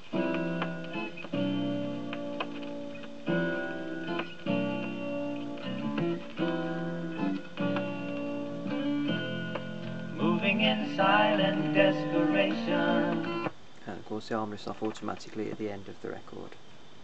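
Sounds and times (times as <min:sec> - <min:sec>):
strummed guitar chords: 0:00.0 - 0:13.5
person singing: 0:10.2 - 0:13.5.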